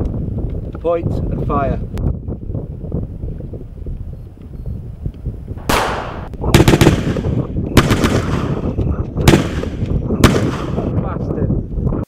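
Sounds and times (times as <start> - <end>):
gunshots with echo: 5.6 - 8.7, 9.3 - 10.9.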